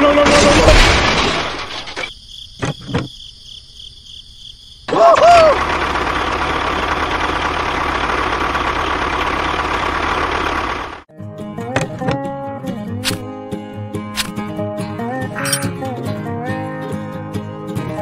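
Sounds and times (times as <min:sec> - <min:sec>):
tractor engine running: 0:05.4 - 0:11.1.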